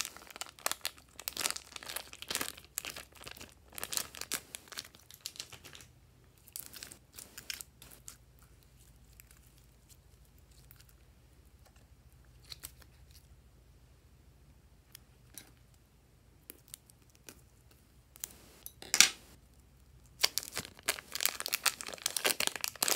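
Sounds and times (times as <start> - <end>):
slime crackling and popping: 0.0 - 8.2, 20.0 - 22.9.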